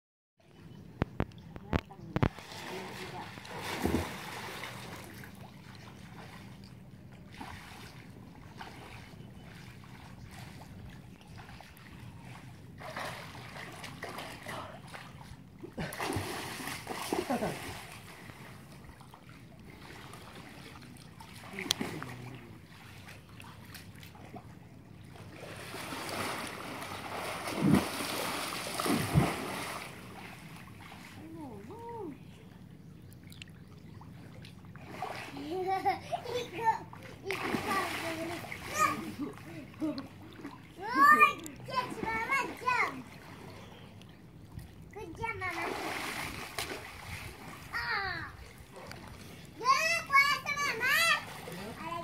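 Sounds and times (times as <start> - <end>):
steady low hum: 0.4 - 52.0
water gently lapping: 0.5 - 52.0
pool water splashing: 2.2 - 52.0
swimmer splashing in pool: 2.3 - 5.4, 15.8 - 18.6, 25.3 - 31.1, 36.6 - 39.5.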